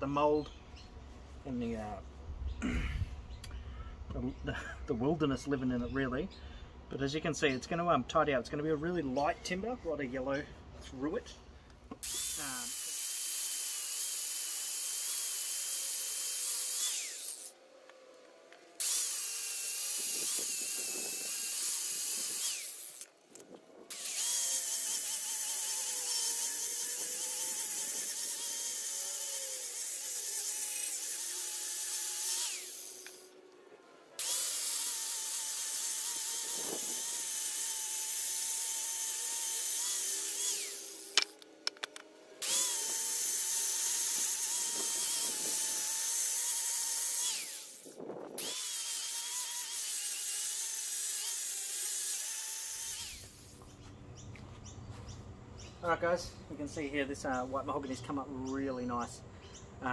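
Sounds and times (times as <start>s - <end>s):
angle grinder sanding wood: 12.0s - 17.6s, 18.8s - 23.1s, 23.9s - 33.4s, 34.2s - 41.4s, 42.4s - 53.7s.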